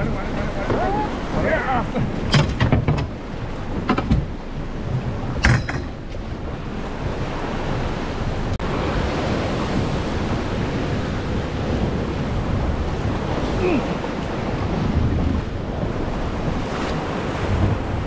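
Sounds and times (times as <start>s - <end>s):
wind on microphone: 0.0s - 18.0s
sharp knocks and splashes: 1.9s - 7.2s.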